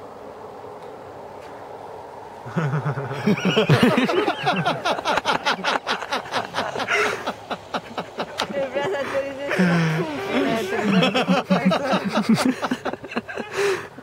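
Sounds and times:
faint hum: 0:00.0 - 0:14.0
people laughing and calling out: 0:02.5 - 0:14.0.

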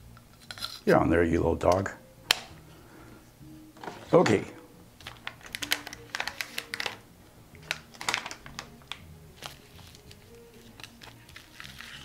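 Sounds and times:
plastic bag crinkling: 0:05.0 - 0:07.0, 0:07.6 - 0:12.0.

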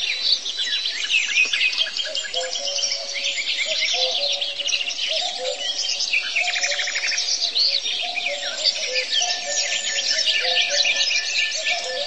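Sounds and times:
bird trill: 0:00.0 - 0:12.0
chorus of birds chirping: 0:00.0 - 0:12.0.

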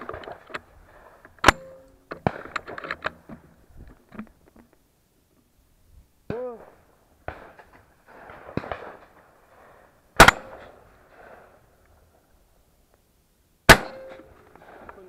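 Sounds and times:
gun handling clicks and knocks: 0:00.0 - 0:05.4
loud shotgun shots: 0:07.2 - 0:09.2, 0:10.2 - 0:11.4, 0:13.7 - 0:14.9.

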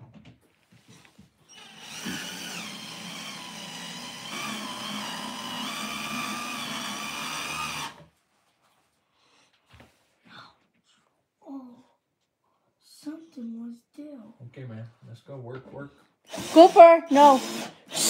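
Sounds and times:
cordless drill motor whining: 0:01.5 - 0:08.0, 0:16.3 - 0:18.0.

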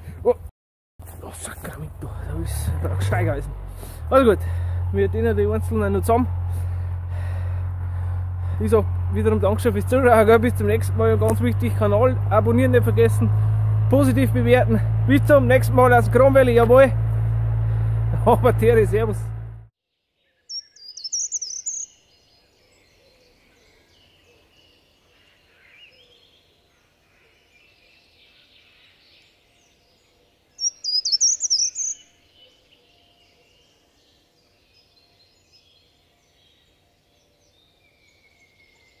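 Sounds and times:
songbird singing: 0:01.2 - 0:39.0
faint bird calls: 0:20.2 - 0:29.2, 0:30.3 - 0:33.9.

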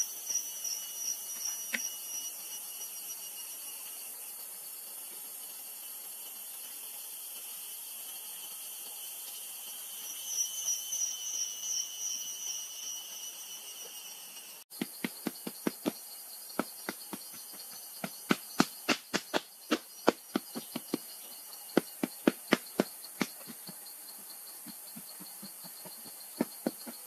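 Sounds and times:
insects buzzing: 0:00.0 - 0:27.0
wooden stick tamping earth: 0:14.8 - 0:16.0, 0:16.6 - 0:21.2, 0:21.8 - 0:23.8, 0:24.6 - 0:27.0.

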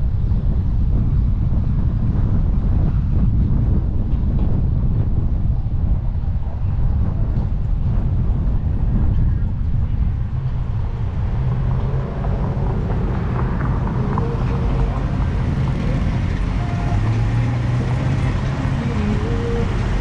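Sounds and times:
car engine and road rumble: 0:00.0 - 0:20.0.

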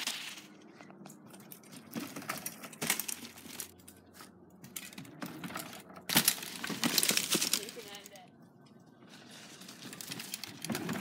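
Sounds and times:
dry leaves rustling: 0:06.1 - 0:08.2.

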